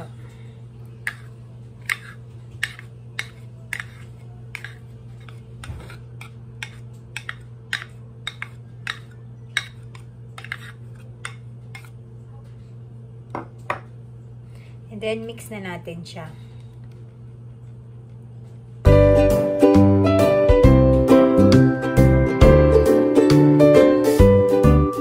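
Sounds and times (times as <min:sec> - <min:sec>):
spoon clicking and scraping tub: 0:00.8 - 0:12.0.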